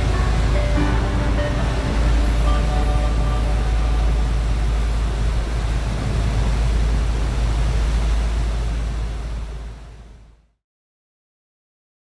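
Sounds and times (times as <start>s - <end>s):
churning wake: 0.0s - 10.5s
boat engine low rumble: 0.0s - 10.6s
wind rushing: 3.4s - 9.4s.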